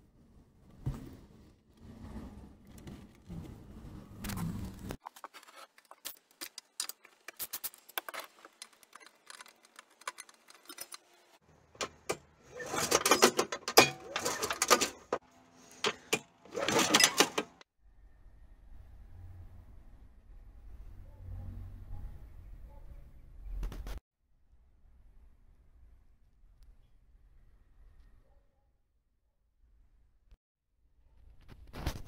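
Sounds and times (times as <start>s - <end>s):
metal tools clinking and rattling: 11.8s - 15.2s, 15.9s - 17.6s.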